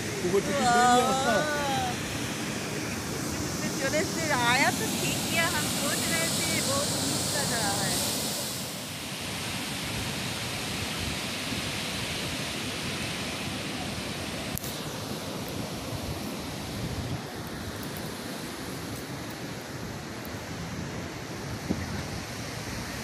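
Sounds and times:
waterfall rushing: 0.0 - 16.8.

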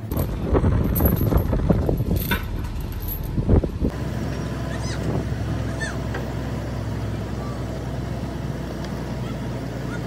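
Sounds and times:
heavy metal clanking: 0.0 - 3.9
diesel engine drone: 0.0 - 10.0
chains rattling: 0.1 - 3.4.

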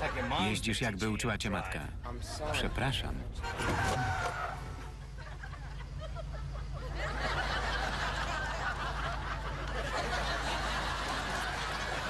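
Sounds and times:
studio audience laughing: 4.9 - 12.0.

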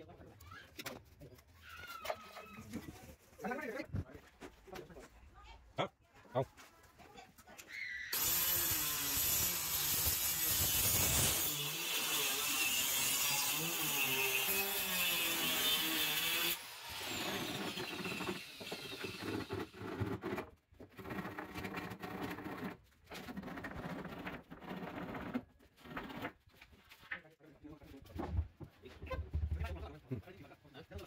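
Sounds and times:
circular saw cutting plywood: 8.1 - 26.4
handsaw rasping: 8.2 - 26.4.

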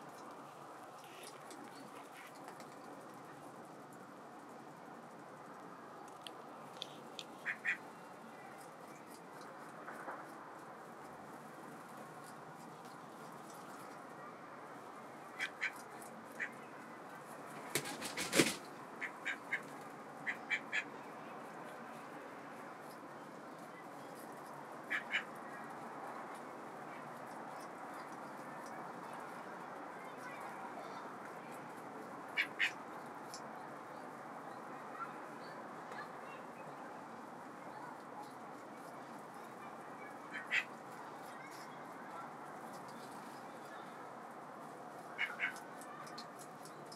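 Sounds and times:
sharp bird calls: 6.9 - 8.1, 17.5 - 21.0, 24.8 - 25.4, 32.4 - 32.8, 40.1 - 40.8, 45.2 - 46.0
ducks quacking softly: 7.2 - 8.0, 15.3 - 16.8, 17.7 - 21.0, 24.8 - 25.4, 32.4 - 32.8, 40.1 - 40.8, 45.2 - 45.7
duck wings flapping: 17.5 - 18.7.

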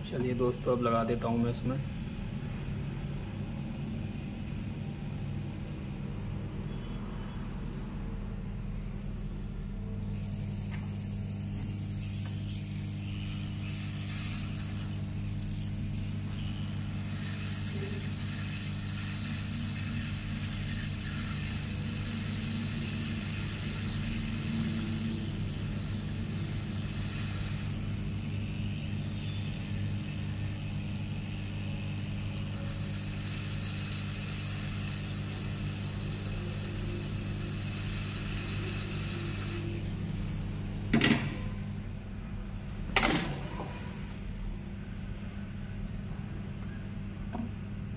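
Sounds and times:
hot air gun blowing: 10.0 - 41.8.

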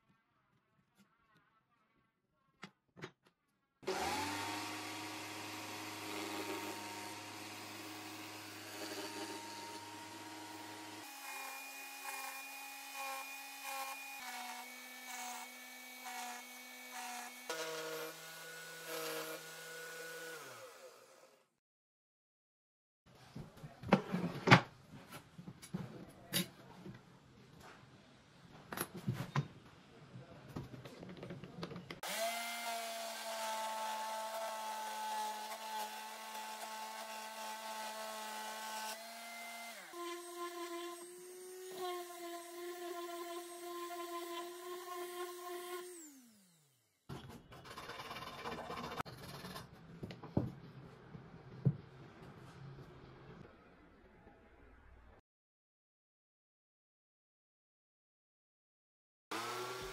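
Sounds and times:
electric jigsaw cutting wood: 3.8 - 21.6, 32.0 - 47.0, 59.3 - 59.9.

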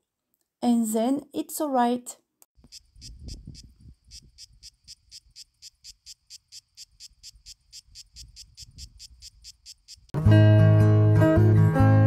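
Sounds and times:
cricket chirping: 2.6 - 10.2.

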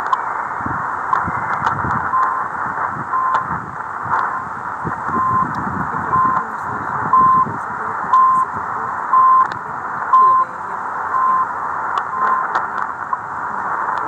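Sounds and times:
radio static hiss and crackle: 0.0 - 14.0
short high beeps: 3.1 - 3.5, 5.1 - 5.5, 6.1 - 6.4, 7.1 - 8.5, 9.1 - 9.5, 10.1 - 11.5, 12.1 - 12.7.

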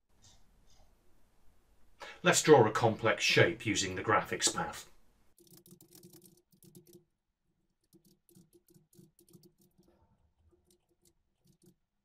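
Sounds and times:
typing on computer keyboard: 5.4 - 7.0, 7.8 - 11.8.

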